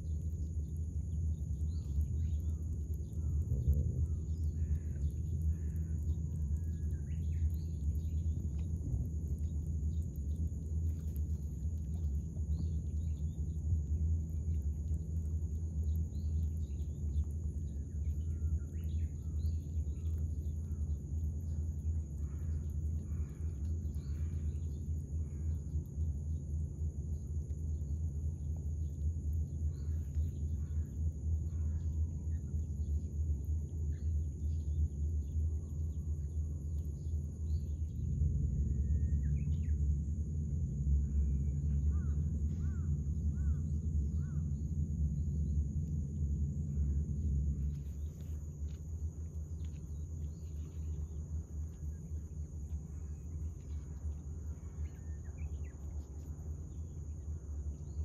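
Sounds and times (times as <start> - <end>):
high-pitched whine: 0.0 - 58.0
steady low rumble: 0.0 - 58.0
bird chirps: 41.0 - 45.6.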